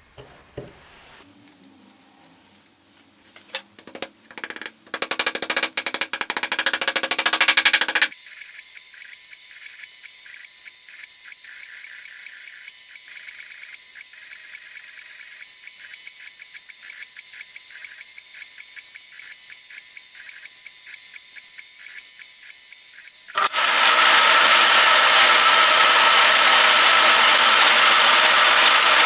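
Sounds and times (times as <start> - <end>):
router spindle whine: 6.8 - 29.0.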